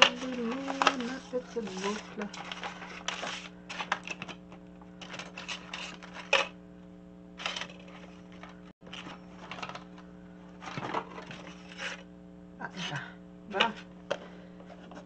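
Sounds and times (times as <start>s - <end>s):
paper rustling: 0.0s - 6.5s, 7.4s - 10.0s, 10.6s - 12.0s
low electrical hum: 0.0s - 15.0s.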